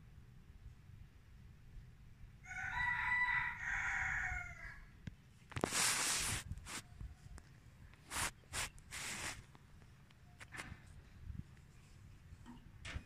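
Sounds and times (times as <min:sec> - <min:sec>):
rooster crowing: 0:02.4 - 0:04.9
short noisy rustle: 0:05.5 - 0:06.9, 0:08.0 - 0:09.6.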